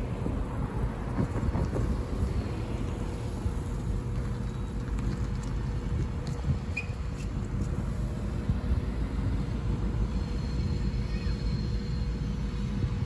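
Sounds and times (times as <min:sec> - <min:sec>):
cars driving past: 0:00.0 - 0:13.0
wind rumble on microphone: 0:00.0 - 0:13.0.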